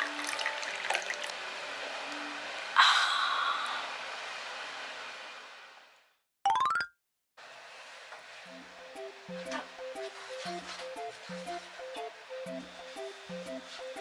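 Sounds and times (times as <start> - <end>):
tea pouring into cup: 0.0 - 1.4.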